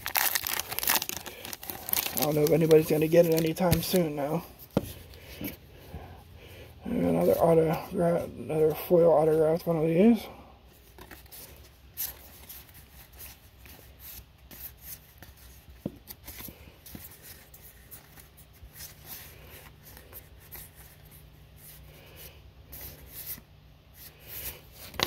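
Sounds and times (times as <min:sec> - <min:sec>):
cards sliding and rubbing: 0:10.8 - 0:25.0.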